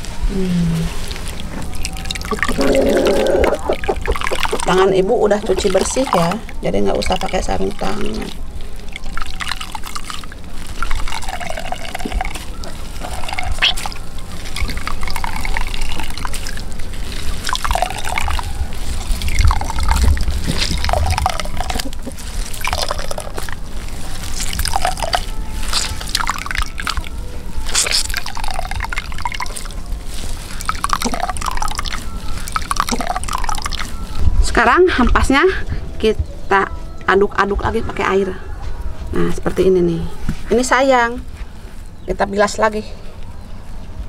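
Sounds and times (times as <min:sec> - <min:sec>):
water splashing and dripping: 0:00.9 - 0:34.2.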